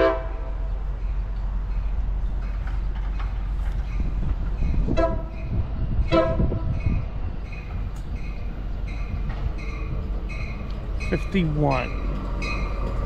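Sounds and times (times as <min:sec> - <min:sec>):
train horn blasts: 0:00.0 - 0:00.7, 0:04.7 - 0:07.0
train rumble: 0:00.0 - 0:13.0.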